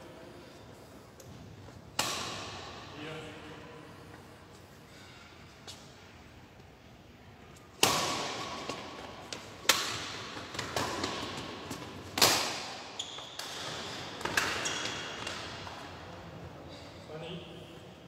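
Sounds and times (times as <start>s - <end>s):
racket hitting shuttlecock: 1.9s - 2.8s, 7.7s - 15.8s.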